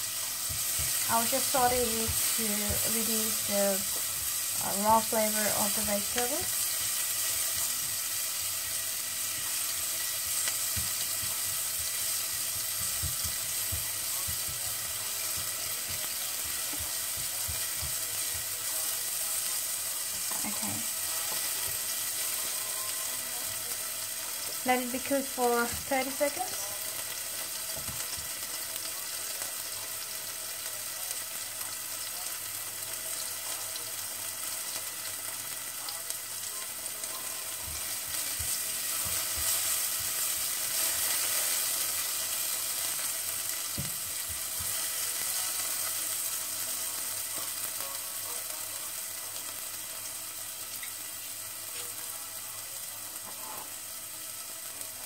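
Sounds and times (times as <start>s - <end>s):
vegetables sizzling in oil: 0.0s - 55.0s
spatula knocking in pan: 10.7s - 18.5s.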